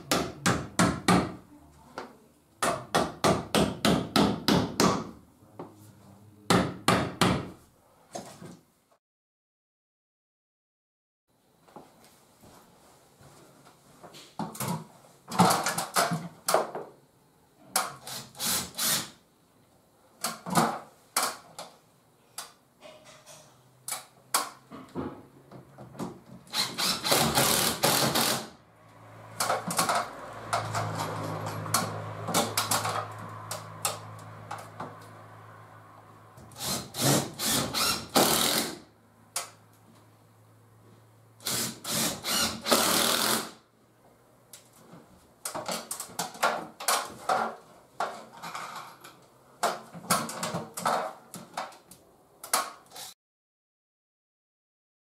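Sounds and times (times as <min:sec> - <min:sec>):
cordless drill running: 0:26.5 - 0:28.5, 0:36.6 - 0:38.8, 0:41.4 - 0:43.6.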